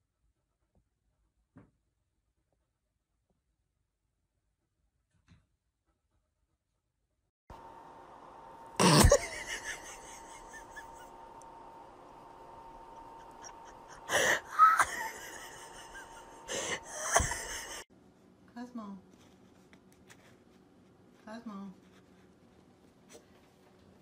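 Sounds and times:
faint steady hum: 7.5 - 24.0.

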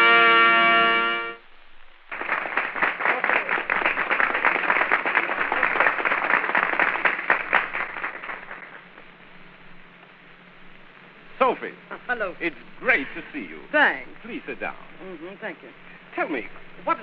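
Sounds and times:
crowd applauding: 2.1 - 9.2.

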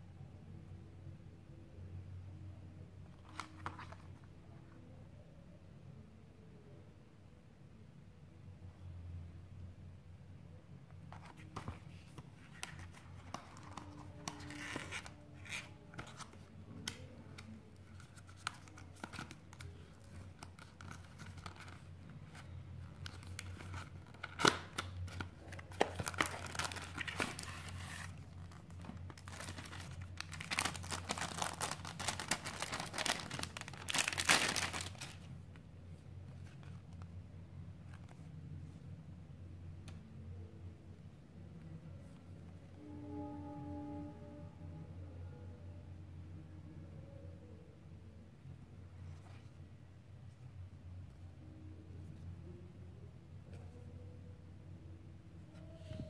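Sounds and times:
packaging crinkling and tearing: 11.2 - 22.4, 23.0 - 35.3.

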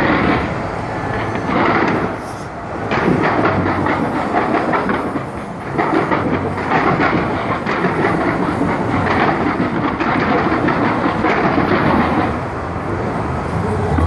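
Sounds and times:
fireworks bangs and crackles: 2.9 - 12.4.

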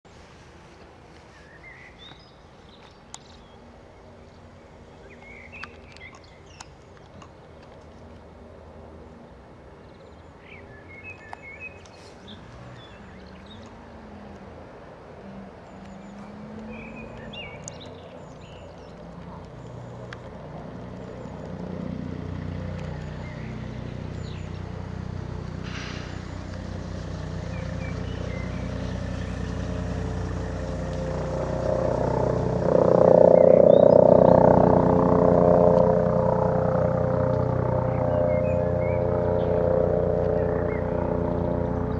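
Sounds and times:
helicopter rotor and turbines: 27.2 - 41.9.

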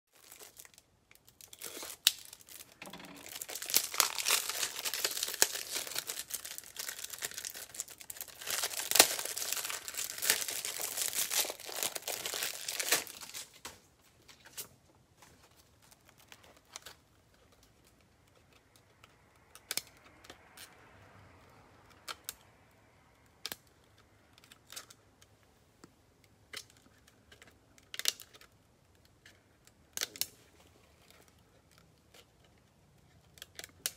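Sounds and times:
plastic wrapping crinkling and tearing: 0.1 - 20.7, 26.5 - 33.9.

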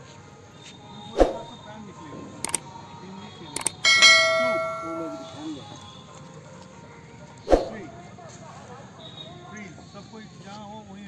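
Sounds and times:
bright bell ding: 3.8 - 5.6.

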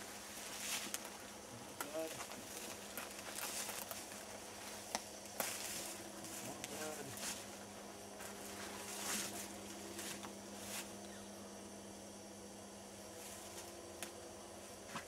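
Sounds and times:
footsteps through dry leaves: 2.0 - 7.6, 8.2 - 11.0.

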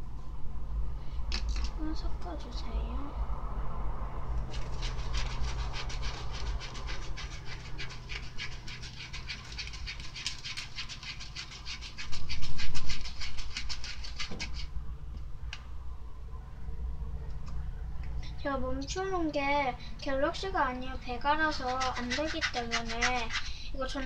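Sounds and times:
plastic spoon scraping cup: 4.5 - 14.7, 21.4 - 24.0.

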